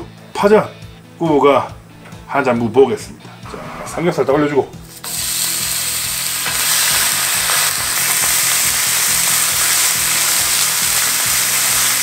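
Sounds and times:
pork frying sizzle: 4.8 - 12.0.

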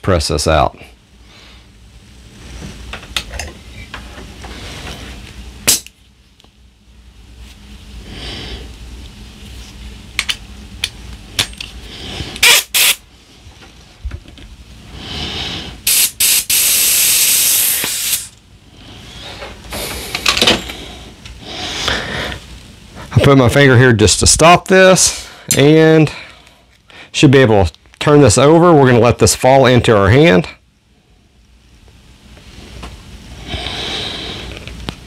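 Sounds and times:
compressed air hissing: 11.8 - 13.1, 14.8 - 22.6, 32.6 - 34.8.

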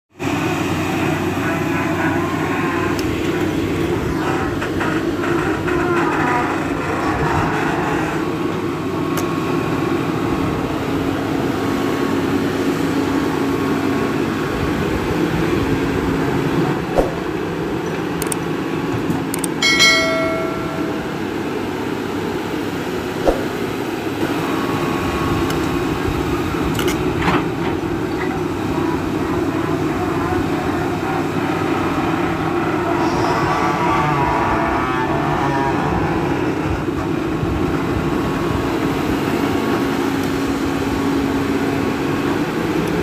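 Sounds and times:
excavator diesel engine running: 0.2 - 43.0
short electronic chime: 19.6 - 21.3.

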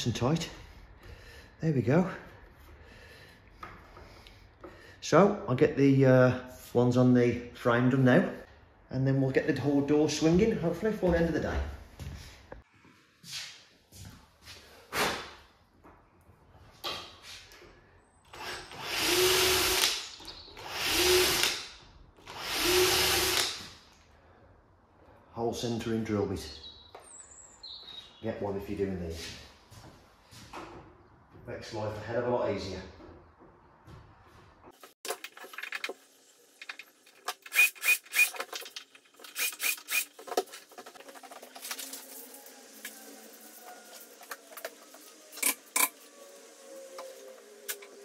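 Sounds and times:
cordless drill drilling: 18.3 - 23.7, 37.4 - 38.5, 39.2 - 40.2.

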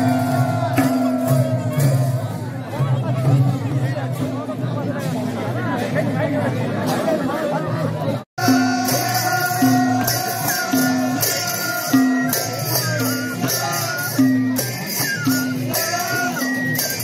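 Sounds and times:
drums beating folk rhythm: 0.0 - 17.0.

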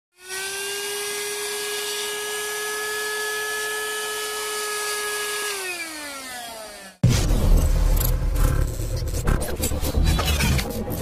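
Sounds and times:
handheld vacuum cleaner running: 0.2 - 7.0
vacuum motor winding down: 0.2 - 7.0.

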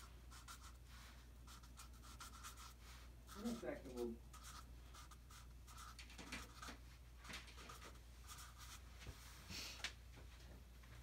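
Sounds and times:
marker writing on paper: 0.0 - 0.8, 1.5 - 6.8, 7.6 - 8.8.

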